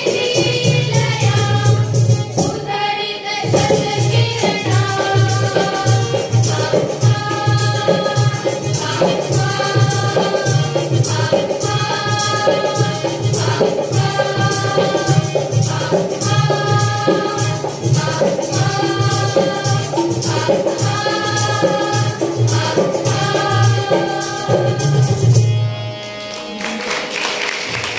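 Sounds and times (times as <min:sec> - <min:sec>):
girls singing in unison: 0:00.0 - 0:25.2
harmonium: 0:00.0 - 0:27.9
hand drum beat: 0:03.4 - 0:25.5.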